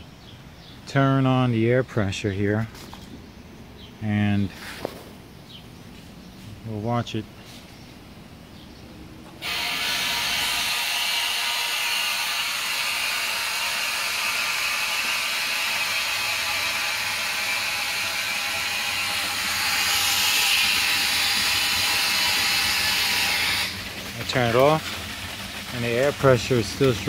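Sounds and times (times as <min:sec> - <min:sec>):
air compressor running: 0:09.2 - 0:27.0.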